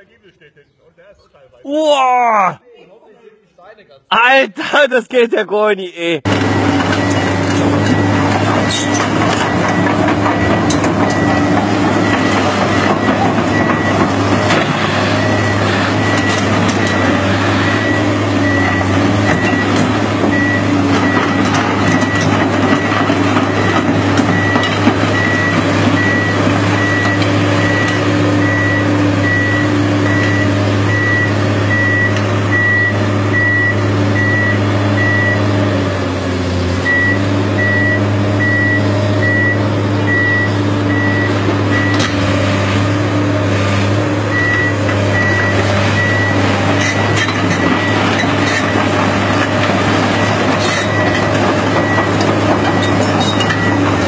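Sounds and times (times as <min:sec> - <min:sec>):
excavator diesel engine running: 0:06.2 - 0:54.0
high beeping travel alarm: 0:23.5 - 0:35.4, 0:36.8 - 0:42.0, 0:44.3 - 0:46.4.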